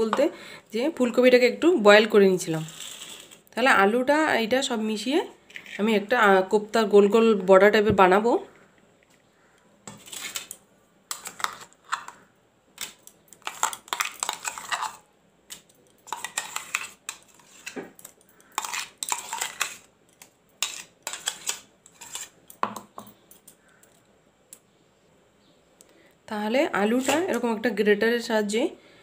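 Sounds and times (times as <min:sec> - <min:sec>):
metal spoon scraping metal jar: 0:13.4 - 0:22.6.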